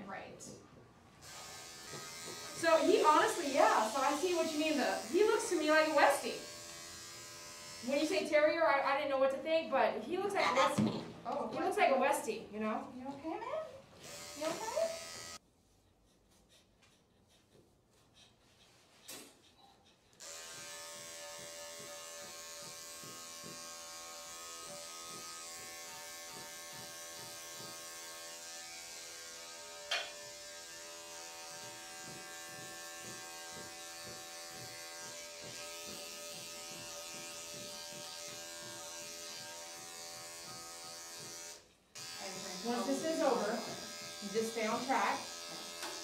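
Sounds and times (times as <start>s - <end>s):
electric clippers running: 1.2s - 8.2s, 14.0s - 15.4s, 20.2s - 46.0s.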